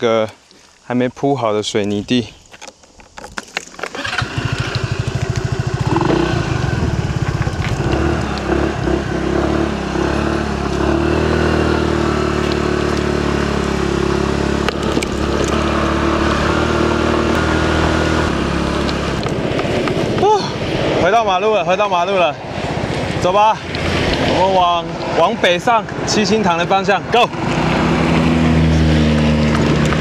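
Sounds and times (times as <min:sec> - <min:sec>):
motor scooter engine: 0:03.9 - 0:21.0, 0:27.5 - 0:30.0.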